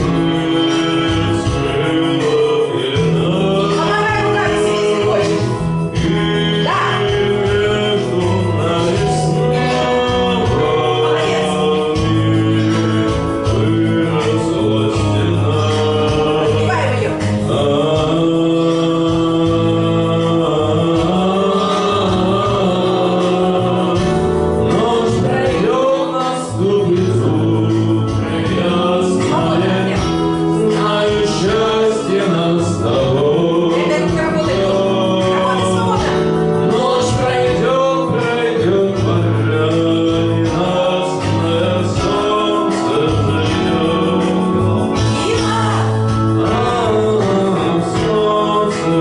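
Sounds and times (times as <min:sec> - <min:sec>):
instrumental backing track: 0:00.0 - 0:49.0
man singing pop song: 0:00.0 - 0:49.0.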